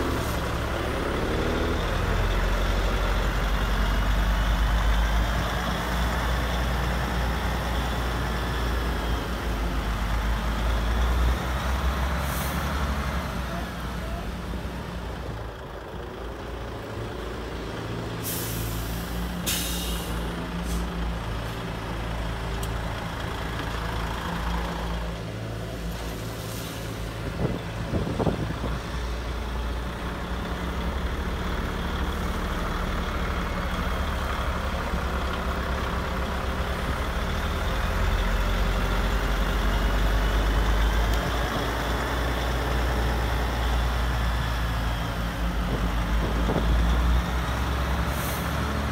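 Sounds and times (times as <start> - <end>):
short hisses: 18.2 - 20.9.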